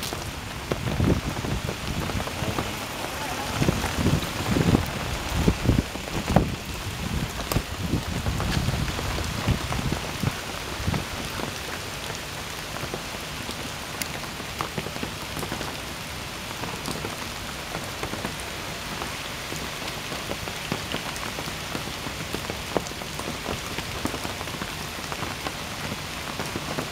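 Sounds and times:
rain falling on water: 0.0 - 26.9.

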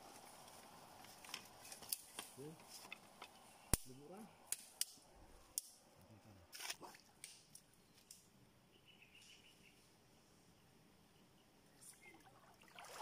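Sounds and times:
dry sticks snapping: 1.0 - 3.9, 4.5 - 5.8, 6.5 - 8.2.

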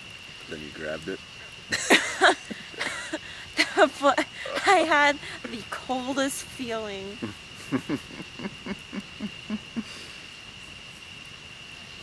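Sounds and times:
person laughing: 1.7 - 5.0, 7.2 - 10.0.

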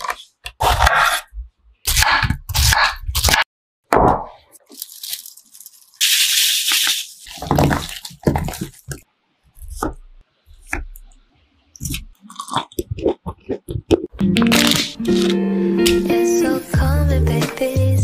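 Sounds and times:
powder sprinkling hiss: 4.8 - 8.1
hands squelching wet fruit: 6.7 - 9.0
crisp bites and chewing: 11.8 - 15.4.

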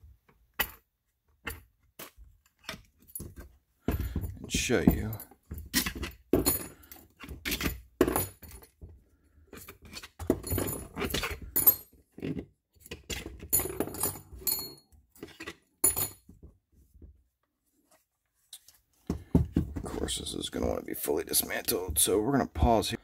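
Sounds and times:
metal bolts clinking and rattling: 0.5 - 8.8, 9.6 - 16.3.

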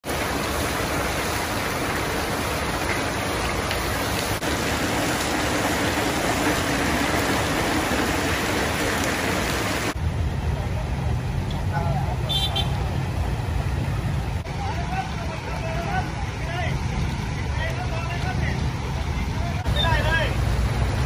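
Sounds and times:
floodwater rushing: 0.0 - 21.0.

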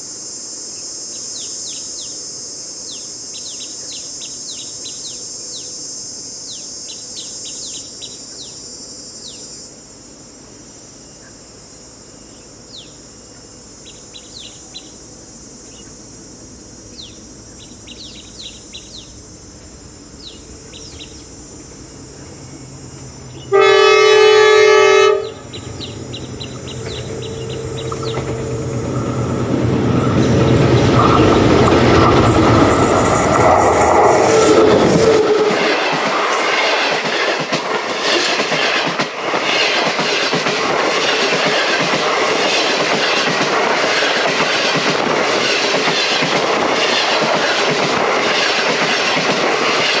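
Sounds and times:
insects droning: 0.0 - 50.0
birds chirping: 12.1 - 15.0, 16.9 - 23.9, 24.9 - 37.9
locomotive engine rumble: 17.2 - 50.0
locomotive horn: 23.4 - 35.9.

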